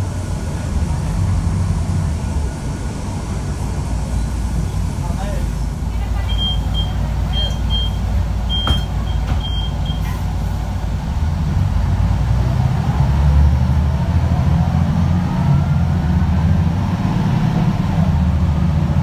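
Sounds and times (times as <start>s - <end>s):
bus diesel engine: 0.0s - 19.0s
short high electronic beeps: 6.3s - 10.1s
rising engine whine: 10.8s - 19.0s.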